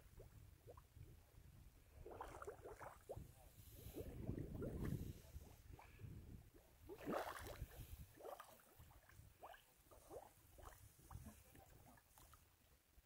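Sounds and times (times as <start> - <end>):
mud bubbles plopping and gurgling: 1.8 - 5.1, 6.8 - 11.7.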